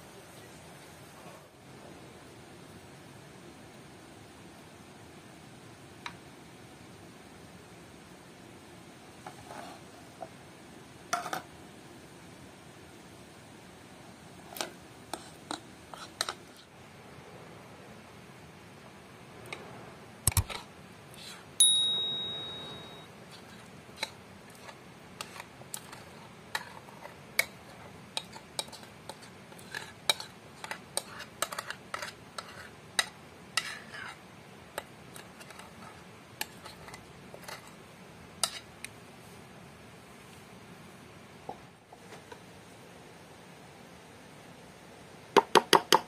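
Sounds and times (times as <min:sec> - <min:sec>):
ringing clink of dishware: 0:21.6 - 0:23.1.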